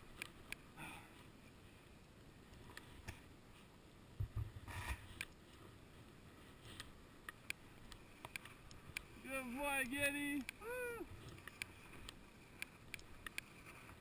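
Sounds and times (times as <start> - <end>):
small clicks: 6.7 - 9.1, 9.8 - 13.9.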